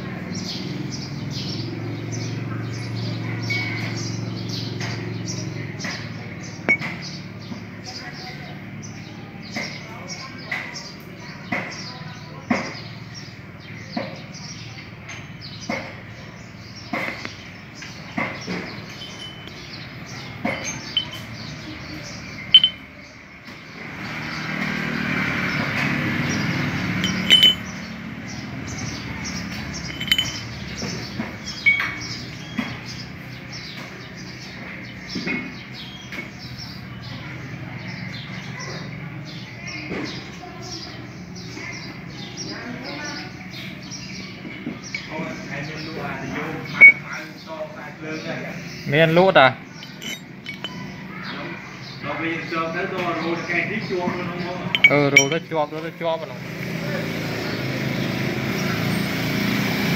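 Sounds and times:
metal parts clinking: 6.7s - 7.0s, 18.8s - 19.7s, 20.5s - 21.4s, 22.5s - 22.8s, 27.0s - 27.8s, 29.8s - 30.9s, 31.5s - 32.0s, 46.7s - 47.0s, 49.8s - 50.9s, 54.7s - 55.5s.

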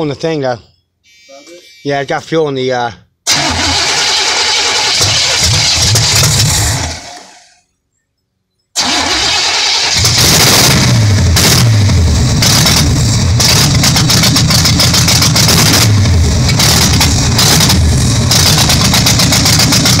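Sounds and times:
engine revving unevenly: 9.3s - 20.0s.

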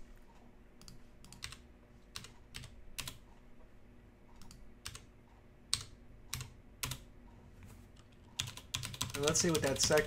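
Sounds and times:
keyboard key presses: 8.0s - 10.0s.

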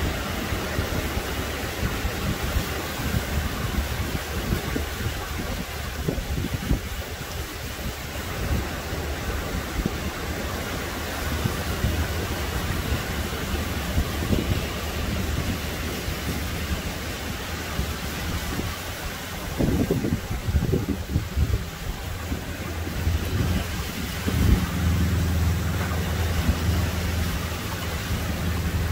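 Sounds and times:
surf washing up beach: 0.0s - 28.9s
wind buffeting microphone: 0.0s - 28.9s.

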